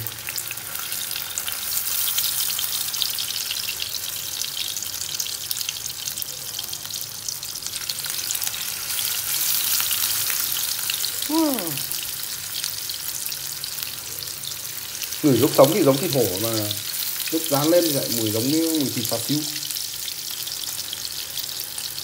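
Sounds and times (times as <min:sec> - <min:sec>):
food sizzling in hot oil: 0:00.0 - 0:22.0
short falling vocal sound: 0:11.3 - 0:12.0.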